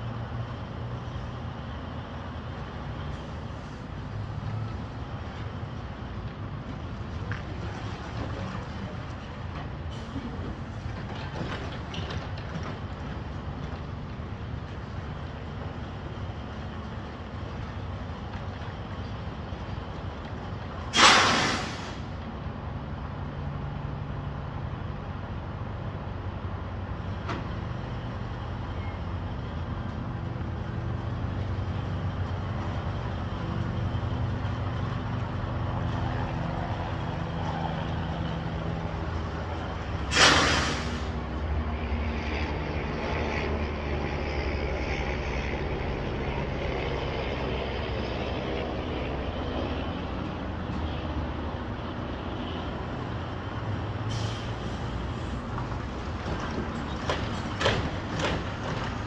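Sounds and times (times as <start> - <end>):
diesel truck engine running: 0.0 - 59.0
air brakes hissing: 20.9 - 22.2, 40.0 - 41.2, 54.1 - 55.4.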